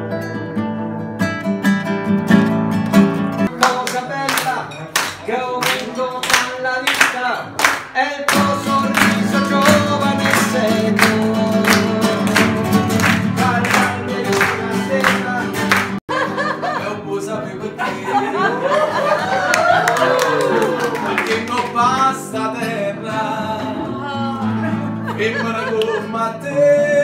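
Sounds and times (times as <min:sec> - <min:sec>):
acoustic guitar playing: 0:00.0 - 0:27.0
hand clapping: 0:02.8 - 0:16.0, 0:19.5 - 0:22.8
group singing: 0:07.9 - 0:16.0, 0:16.6 - 0:27.0.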